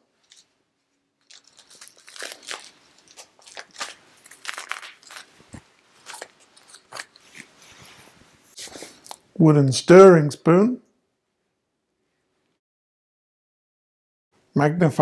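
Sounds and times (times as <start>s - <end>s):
plastic packets crinkling: 0.1s - 0.5s, 1.1s - 7.8s.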